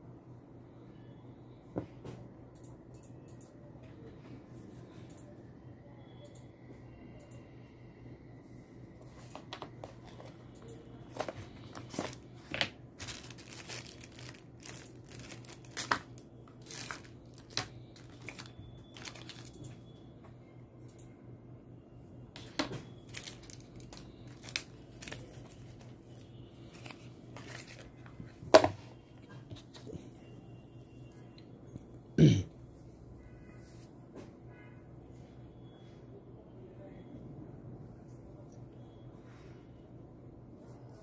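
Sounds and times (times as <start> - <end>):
steady low hum: 0.0 - 29.2
plastic bags crinkling: 11.1 - 19.6, 23.0 - 25.9.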